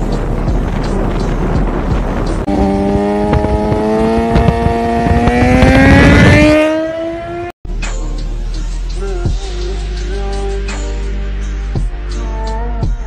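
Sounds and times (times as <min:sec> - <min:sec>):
motorcycle engine accelerating: 0:00.0 - 0:07.5
wind rushing: 0:00.0 - 0:07.5.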